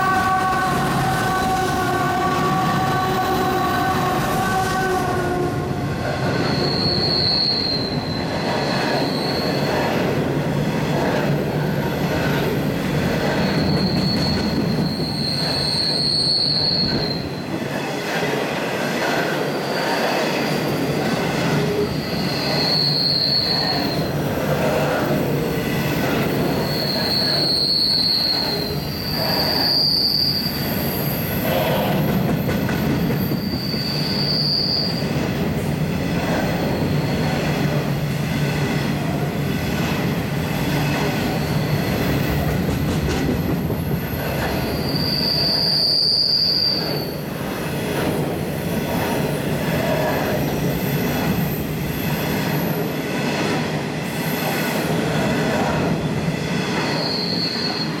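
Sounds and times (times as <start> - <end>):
high-pitched wheel squeal: 6.4 - 9.7, 13.4 - 17.3, 22.0 - 24.1, 26.6 - 31.6, 33.2 - 35.1, 44.6 - 47.2, 56.9 - 58.0
train wagons rolling: 10.8 - 19.4, 31.0 - 53.7.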